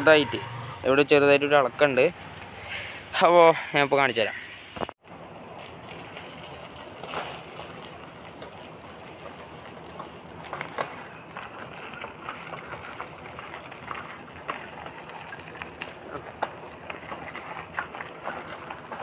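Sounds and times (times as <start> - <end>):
bike clicks and knocks: 4.8 - 19.0.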